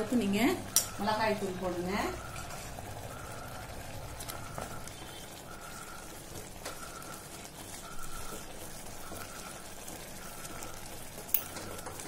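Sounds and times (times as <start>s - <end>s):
thick sauce bubbling: 0.1s - 12.0s
wooden spatula stirring: 4.0s - 12.0s.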